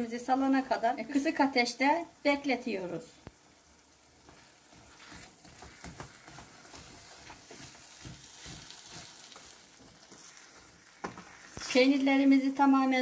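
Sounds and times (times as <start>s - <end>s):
butter sizzling softly: 0.0s - 13.0s
wooden spoon scraping pan: 4.2s - 12.3s.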